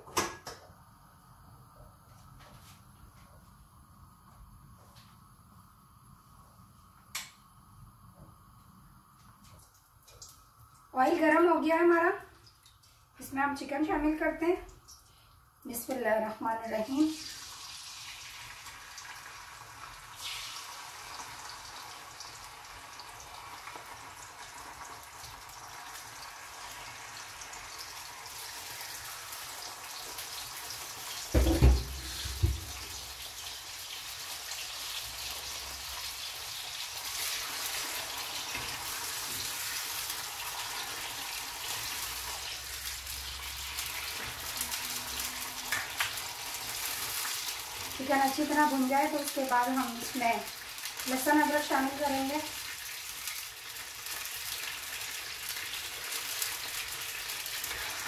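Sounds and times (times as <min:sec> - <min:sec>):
chicken sizzling in oil: 0:10.1 - 0:58.0
loud knocks: 0:31.4 - 0:32.8.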